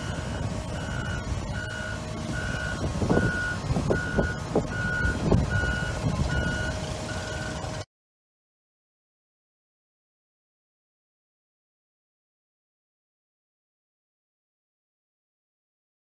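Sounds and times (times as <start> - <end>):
backup alarm beeping: 0.0 - 7.6
diesel engine running: 0.0 - 7.9.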